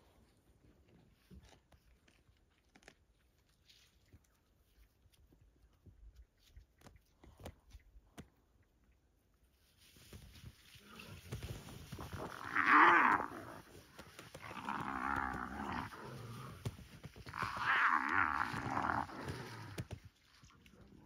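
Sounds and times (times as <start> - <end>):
drawn-out animal calls: 10.7 - 19.9.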